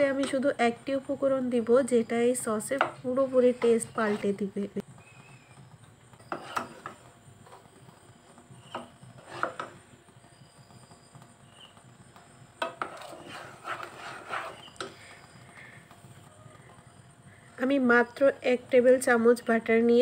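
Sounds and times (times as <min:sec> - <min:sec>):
wooden spoon scraping a saucepan: 0:02.8 - 0:04.7, 0:06.2 - 0:07.6, 0:08.3 - 0:09.8, 0:12.6 - 0:15.2.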